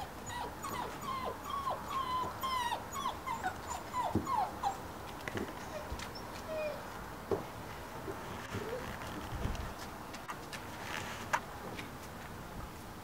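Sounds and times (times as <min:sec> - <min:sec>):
puppies whining and yipping: 0:00.0 - 0:04.9, 0:05.6 - 0:06.9.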